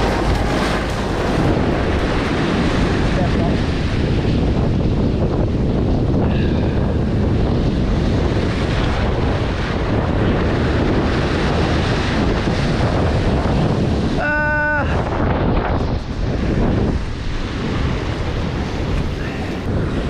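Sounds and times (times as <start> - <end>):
waves breaking on rocks: 0.0 - 20.0
wind buffeting microphone: 0.0 - 20.0.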